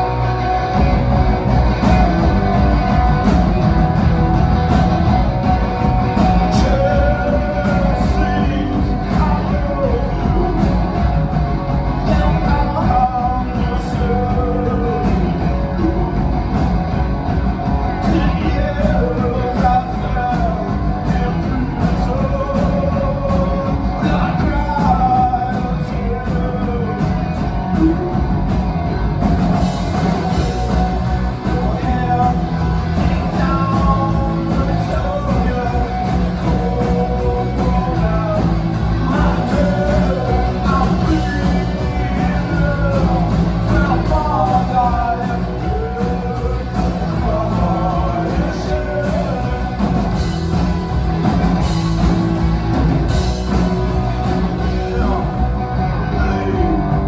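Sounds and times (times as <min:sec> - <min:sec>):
person singing: 0:00.0 - 0:28.9, 0:29.6 - 0:57.0
live rock band playing: 0:00.0 - 0:57.0.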